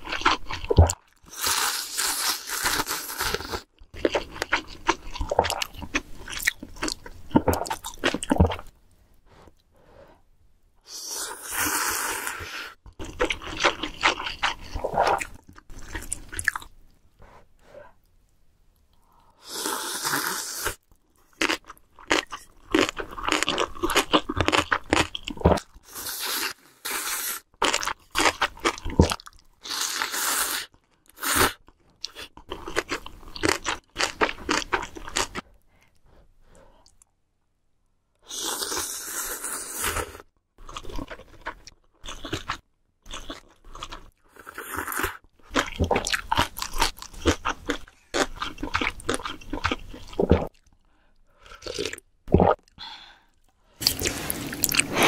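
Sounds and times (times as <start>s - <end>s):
slurping noodles: 19.4s - 20.8s, 25.8s - 27.5s, 53.8s - 55.0s
chewing and mouth clicks: 40.6s - 52.8s.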